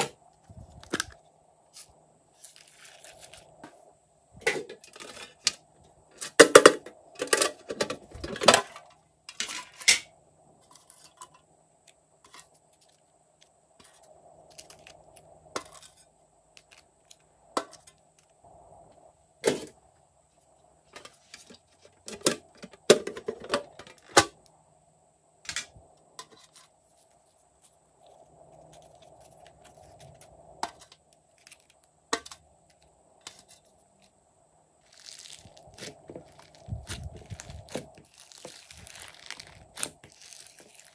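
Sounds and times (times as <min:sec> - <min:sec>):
plastic containers clicking and clattering: 0:06.2 - 0:10.0, 0:20.9 - 0:24.4.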